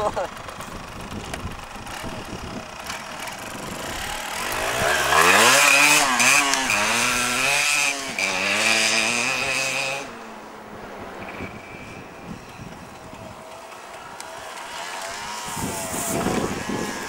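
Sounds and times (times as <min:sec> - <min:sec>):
two-stroke motorcycle accelerating: 0:00.0 - 0:17.0.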